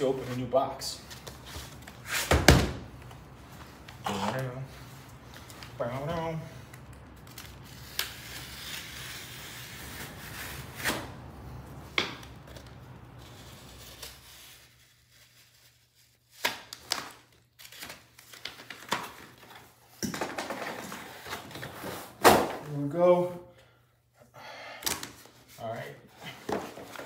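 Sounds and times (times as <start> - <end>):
cardboard tearing and rustling: 12.6 - 19.7.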